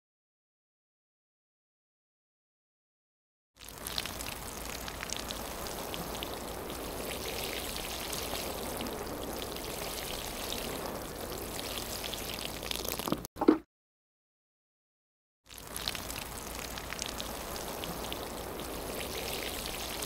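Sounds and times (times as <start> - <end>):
rain pattering: 3.6 - 13.3, 15.5 - 20.0.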